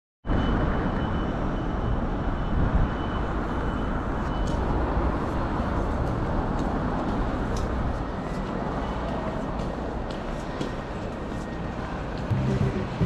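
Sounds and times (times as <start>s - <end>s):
traffic rumble: 0.5s - 13.0s.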